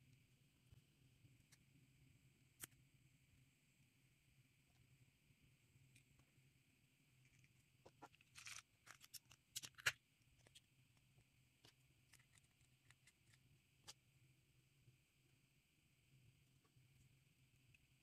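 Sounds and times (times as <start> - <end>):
plastic packaging crinkle: 8.0 - 10.6.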